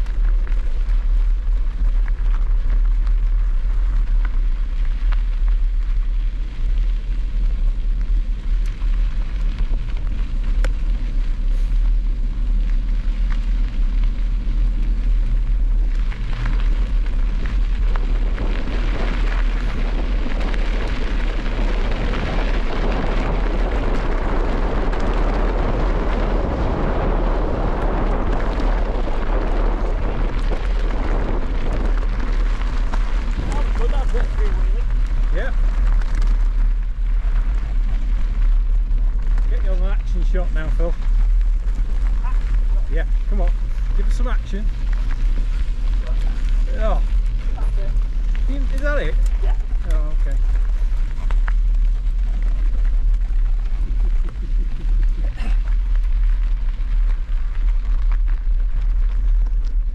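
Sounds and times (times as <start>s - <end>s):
tyres rolling over gravel: 0.0s - 59.9s
wind buffeting microphone: 0.0s - 59.9s.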